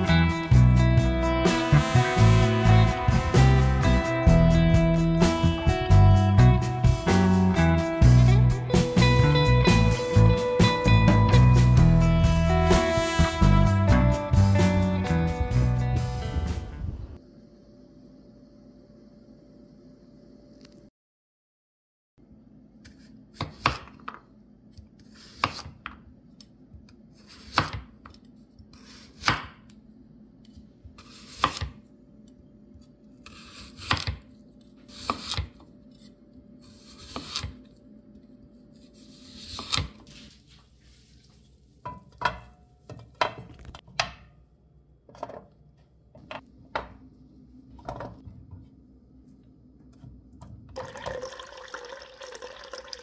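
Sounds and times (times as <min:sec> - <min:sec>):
knife cutting on wooden board: 0:25.0 - 0:25.8, 0:30.9 - 0:31.8, 0:34.9 - 0:37.6, 0:38.8 - 0:40.1
water running into cup: 0:50.8 - 0:53.0.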